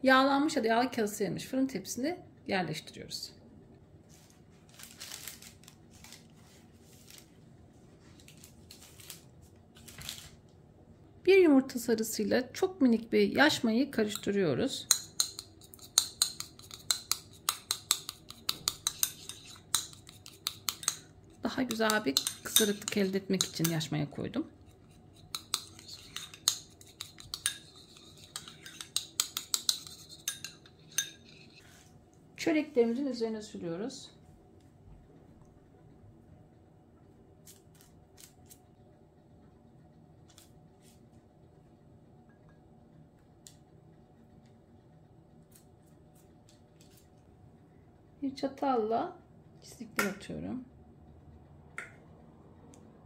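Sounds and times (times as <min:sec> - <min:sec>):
baking paper crinkling: 0:04.0 - 0:10.5
spoon clinking in ceramic bowl: 0:21.7 - 0:23.8, 0:25.4 - 0:31.3.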